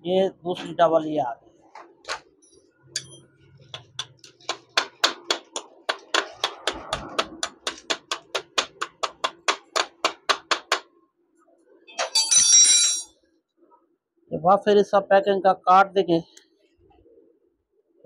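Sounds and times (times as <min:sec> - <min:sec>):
steel rod tapping metal punch: 0:03.0 - 0:06.8.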